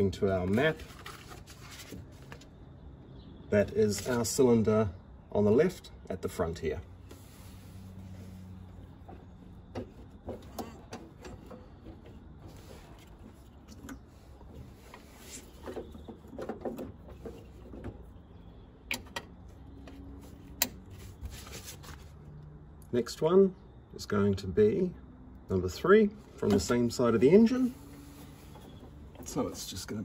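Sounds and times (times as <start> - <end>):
rustling and light knocks: 7.1 - 18.3, 27.8 - 29.9.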